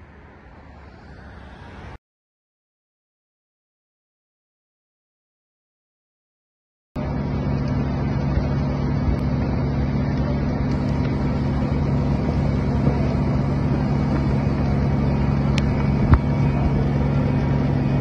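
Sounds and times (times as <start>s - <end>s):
low engine-like hum: 0.0s - 2.0s, 7.0s - 18.0s
fire rumbling: 7.0s - 18.0s.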